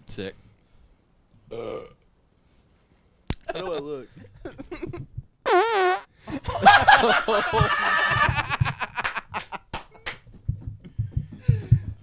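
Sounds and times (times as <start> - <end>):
men laughing: 3.4 - 5.1, 6.3 - 9.8.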